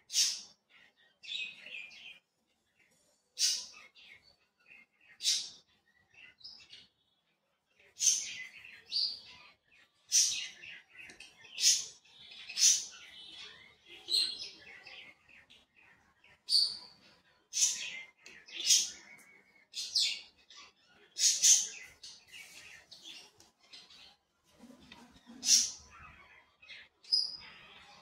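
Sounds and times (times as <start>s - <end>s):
birds chirping: 0.0s - 28.0s.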